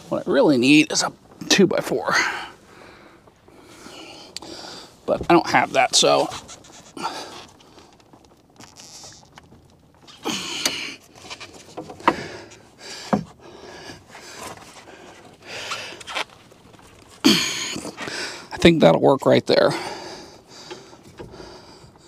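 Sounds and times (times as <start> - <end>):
foam tubing rustling and scraping: 0.0 - 22.0
person breathing hard: 2.1 - 5.0, 12.0 - 16.1, 17.2 - 18.5, 19.7 - 22.0.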